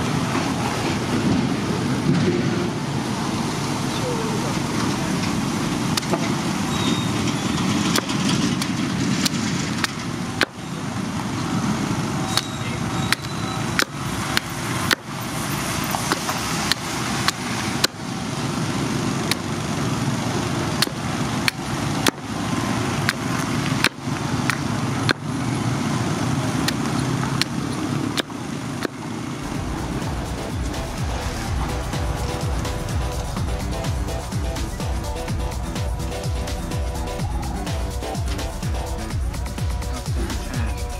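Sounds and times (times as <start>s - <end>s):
hatchet chopping wood: 7.9s - 10.6s, 13.1s - 15.2s, 16.0s - 18.0s, 19.3s - 19.5s, 20.8s - 22.3s, 23.0s - 25.3s, 28.2s - 29.0s
low background rumble: 29.4s - 40.9s.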